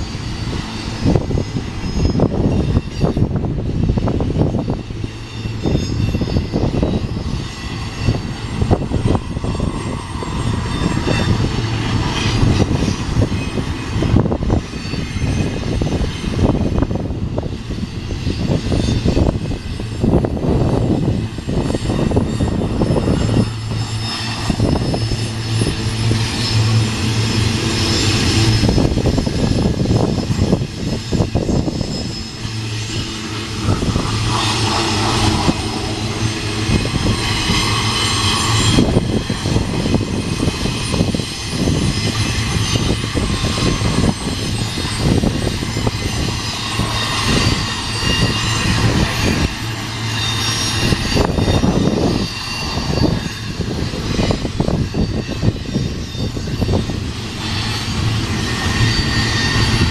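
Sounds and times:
freight train rumbling past: 0.0 - 59.9.

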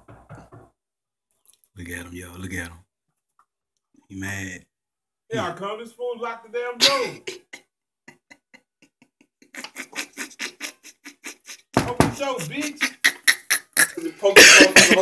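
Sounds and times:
man laughing loudly: 6.8 - 15.0.

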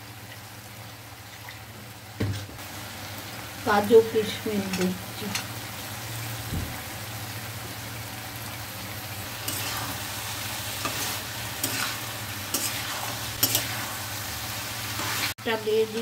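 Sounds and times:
vegetables sizzling in pan: 0.0 - 16.0
metal spatula scraping pan: 9.4 - 10.1, 10.8 - 14.0.

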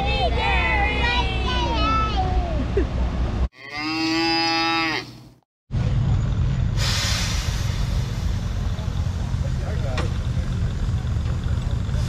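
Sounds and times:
cow mooing: 3.6 - 5.2
engine machinery rumble: 5.7 - 12.0
hiss: 6.8 - 8.6.

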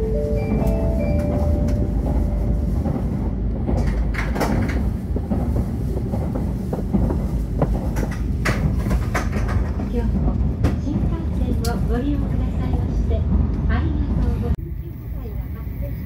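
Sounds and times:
train cabin low rumble: 0.0 - 16.0
sharp clicks and knocks: 6.2 - 11.9.

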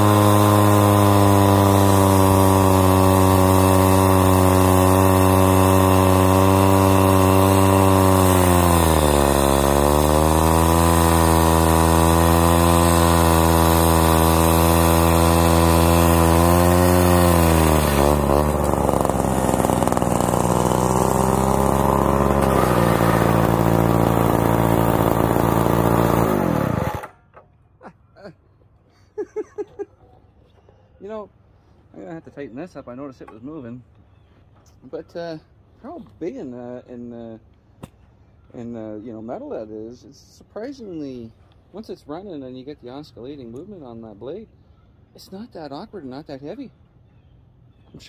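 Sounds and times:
cut-off saw engine running: 0.0 - 27.2.

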